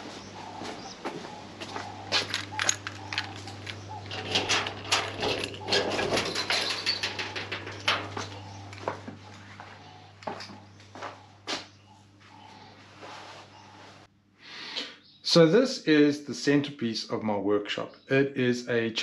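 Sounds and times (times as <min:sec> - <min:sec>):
footsteps: 0:00.0 - 0:14.1.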